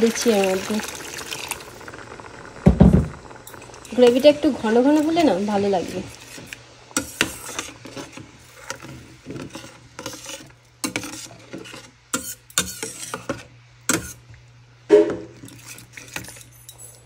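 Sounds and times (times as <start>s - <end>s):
utensil stirring thick gravy: 3.8s - 14.2s.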